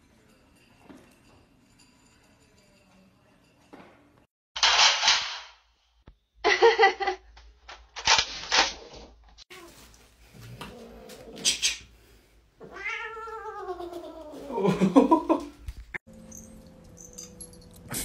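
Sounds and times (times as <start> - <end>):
cat yowling: 12.7 - 14.5.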